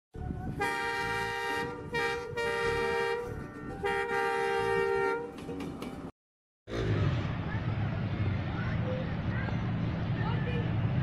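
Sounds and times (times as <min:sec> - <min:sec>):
locomotive air horn blasts: 0:00.5 - 0:05.4.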